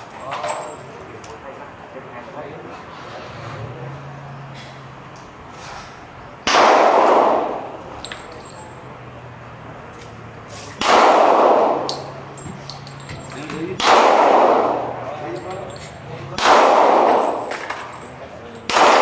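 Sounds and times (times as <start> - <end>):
handgun shots echoing: 6.5 - 7.6, 13.8 - 15.0, 16.4 - 17.8, 18.7 - 19.0.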